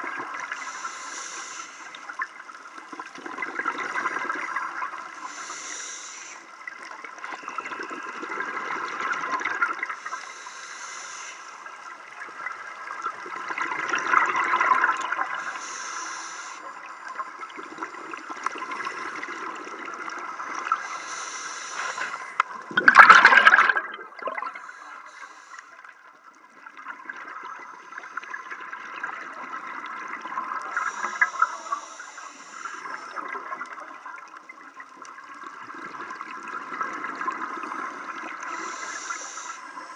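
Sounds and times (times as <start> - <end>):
exhaled bubbles underwater: 0.0 - 1.0, 2.0 - 5.6, 6.6 - 10.2, 11.7 - 39.9
regulator inhale hiss: 0.4 - 2.2, 3.9 - 6.8, 9.9 - 12.1, 15.2 - 17.4, 20.3 - 22.4, 24.4 - 26.0, 30.6 - 33.4, 38.1 - 39.9.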